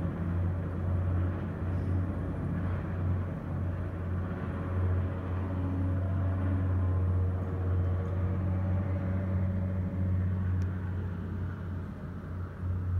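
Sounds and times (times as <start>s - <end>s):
helicopter rotor drone: 0.0s - 12.9s.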